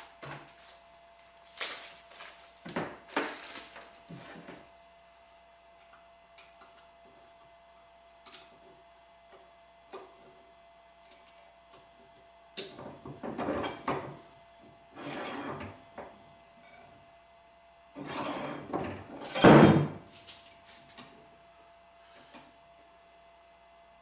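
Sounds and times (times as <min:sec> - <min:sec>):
metal scraping and rattling: 0:18.0 - 0:20.0.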